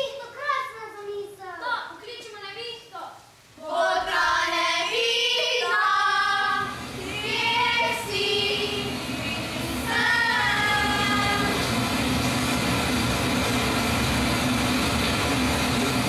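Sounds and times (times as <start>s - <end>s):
children singing: 3.6s - 11.6s.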